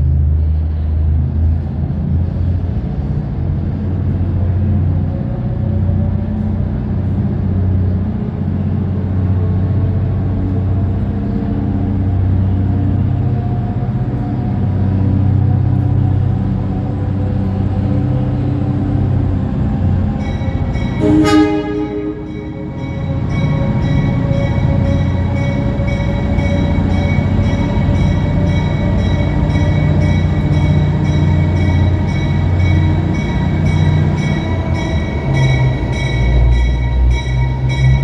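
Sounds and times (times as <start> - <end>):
subway train rumbling: 0.0 - 38.0
train horn blast: 21.0 - 25.0.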